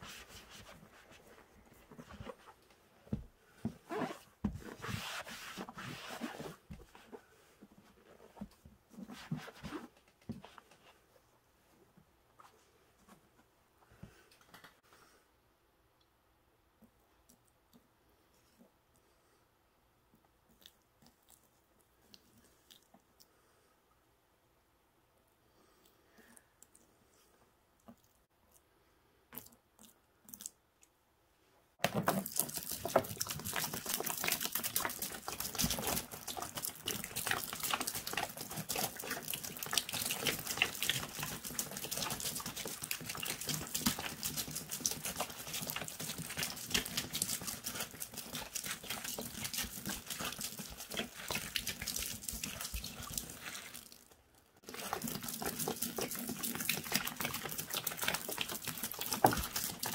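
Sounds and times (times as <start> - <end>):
liquid pouring and splashing: 31.8 - 59.9
suds fizzing and crackling: 32.0 - 59.9.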